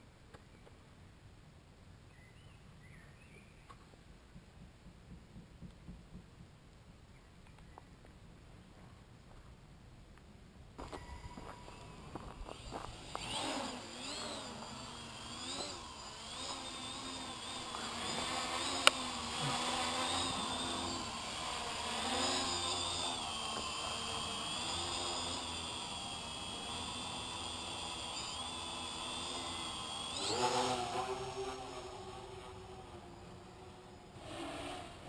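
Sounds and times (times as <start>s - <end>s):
drone propellers whining: 10.8s - 35.0s.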